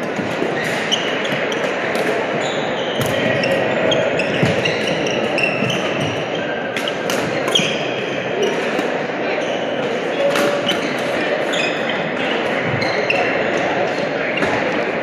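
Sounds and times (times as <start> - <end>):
hall chatter: 0.0 - 15.0
rackets striking shuttlecock: 0.1 - 2.3
shoes squeaking on court floor: 0.1 - 14.8.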